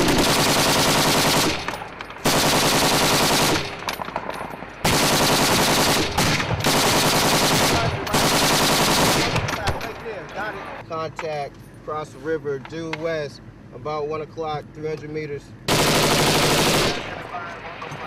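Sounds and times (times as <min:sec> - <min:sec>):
automatic machine-gun fire: 0:00.0 - 0:03.8, 0:04.8 - 0:09.5, 0:15.7 - 0:17.2.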